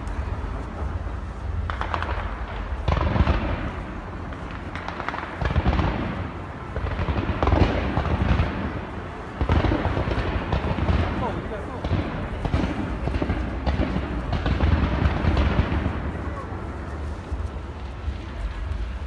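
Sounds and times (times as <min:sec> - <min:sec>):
constant low rumble: 0:00.0 - 0:19.0
fireworks booming: 0:00.0 - 0:19.0
fireworks crackling: 0:00.0 - 0:19.0.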